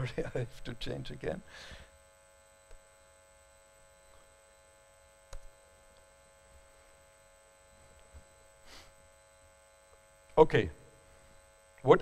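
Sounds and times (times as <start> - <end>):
electrical hum: 0.0 - 12.0
small clicks: 5.3 - 6.1.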